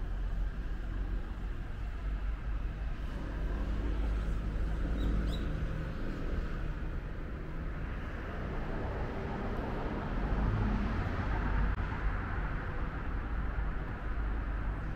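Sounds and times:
urban traffic hum: 0.0s - 14.9s
bird chirping: 4.9s - 5.6s.

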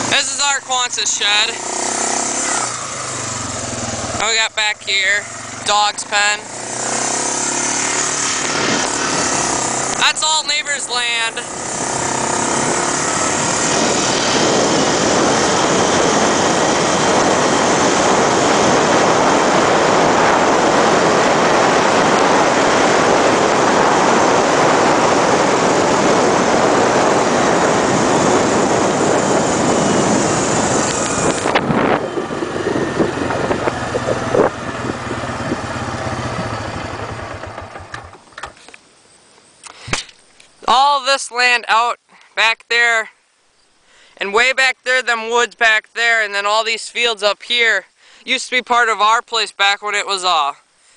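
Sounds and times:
loud rushing noise: 0.0s - 37.8s
quad bike engine running: 0.0s - 38.6s.

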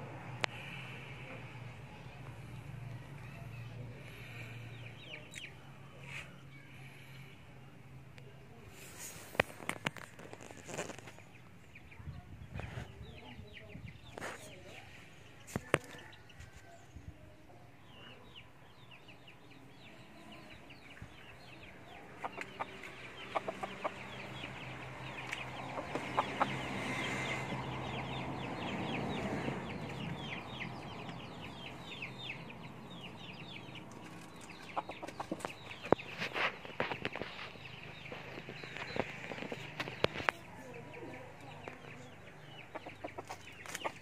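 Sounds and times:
chicken clucking: 20.8s - 44.0s.

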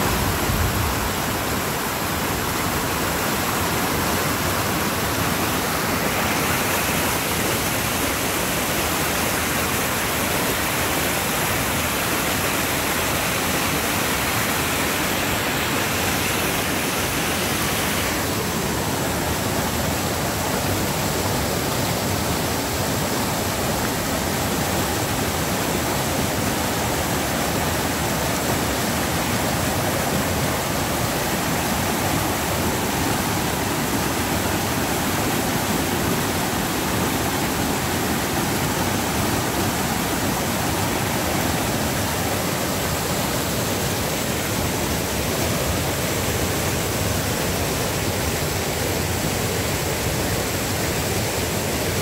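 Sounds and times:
creek rushing through rapids: 0.0s - 52.0s.

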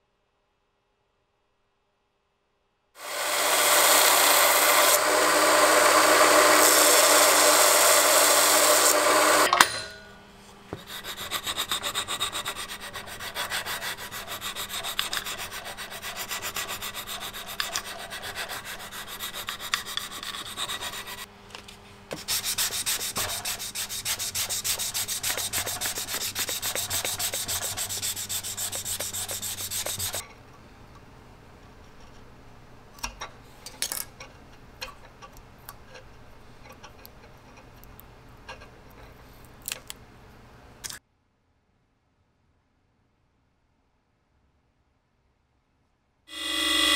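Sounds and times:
belt sander grinding metal: 3.0s - 9.5s, 11.0s - 21.3s, 22.4s - 30.2s
sanding rubbing strokes: 10.8s - 21.3s, 22.2s - 30.2s.

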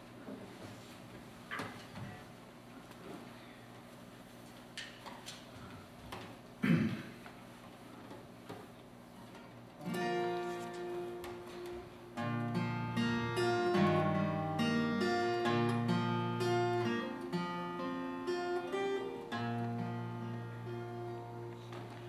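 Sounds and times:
acoustic guitar chords: 9.8s - 22.0s.

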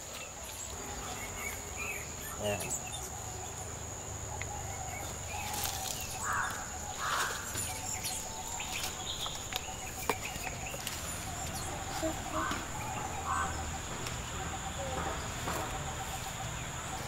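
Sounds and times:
short bird calls: 4.4s - 17.0s.

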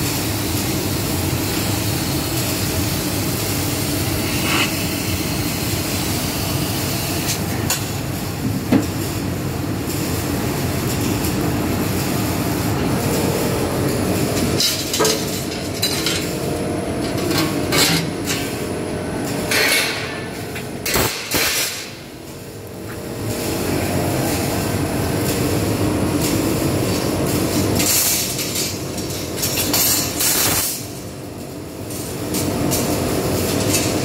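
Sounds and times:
laser cutting machine running: 0.0s - 29.6s
machine clatter: 10.8s - 22.0s, 24.2s - 31.0s, 31.9s - 34.0s.

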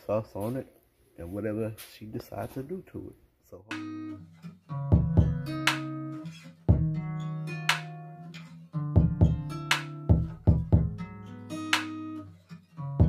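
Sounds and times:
plucked string music with bass: 3.7s - 13.0s
heavy low beat hits: 4.9s - 5.5s, 6.7s - 7.0s, 9.0s - 9.5s, 10.1s - 11.0s.

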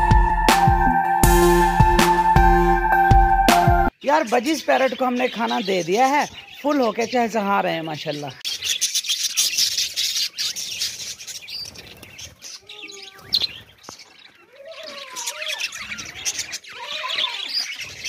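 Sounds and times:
budgerigars chirping and chattering: 4.0s - 18.0s
low wavering bird calls: 4.6s - 18.0s.

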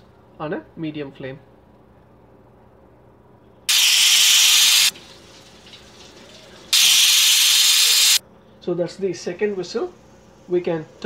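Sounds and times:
pressure cooker whistling: 3.7s - 4.9s, 6.7s - 8.2s
faint steam hiss: 3.7s - 8.2s.

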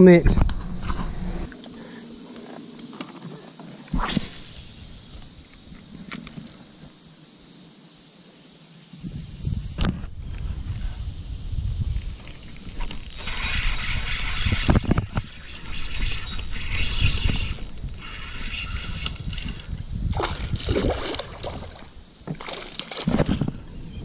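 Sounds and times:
fishing reel cranking: 12.7s - 19.8s
fish splashing: 20.1s - 23.2s.

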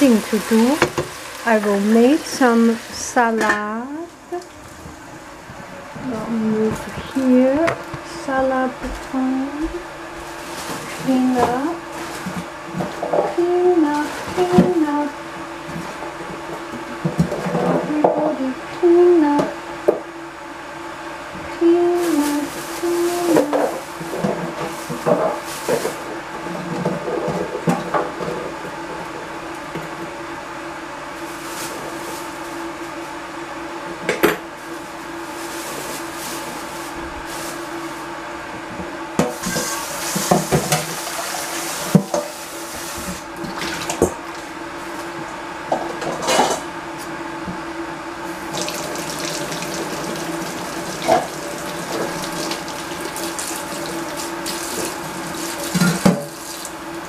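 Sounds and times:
running water: 0.0s - 3.4s, 48.5s - 56.8s
constant low hum: 0.0s - 41.0s.

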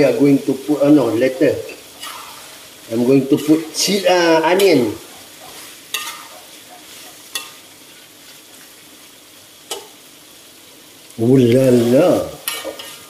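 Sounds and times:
prawns sizzling in a wok: 0.0s - 13.0s
metal turner scraping wok: 1.7s - 8.0s, 11.5s - 13.0s.

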